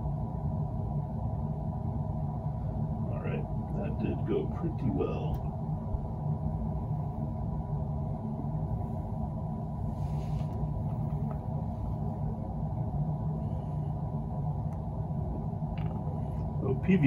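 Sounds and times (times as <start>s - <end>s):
low rumbling hum: 0.0s - 17.0s
faint rustle: 9.8s - 12.2s.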